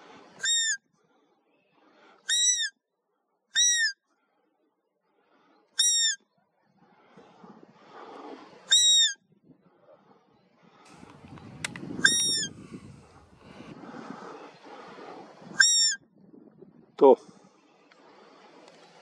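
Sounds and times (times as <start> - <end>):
high-pitched deer calls: 0.4 - 0.8, 2.3 - 2.8, 3.6 - 4.0, 5.8 - 6.2, 8.7 - 9.2, 12.0 - 12.6, 15.6 - 16.0.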